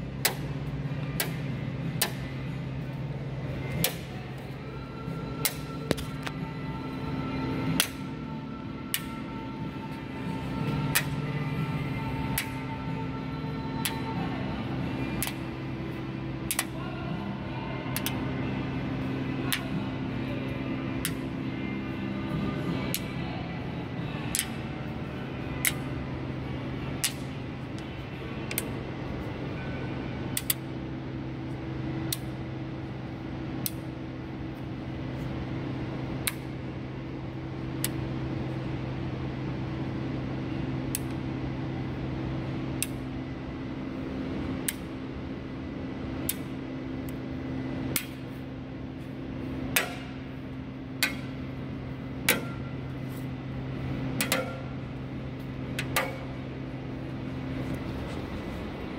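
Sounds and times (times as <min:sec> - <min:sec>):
steady low hum: 0:00.0 - 0:58.9
magnet clicking against metal: 0:18.0 - 0:18.2, 0:28.5 - 0:28.7, 0:30.4 - 0:30.6, 0:32.1 - 0:32.3.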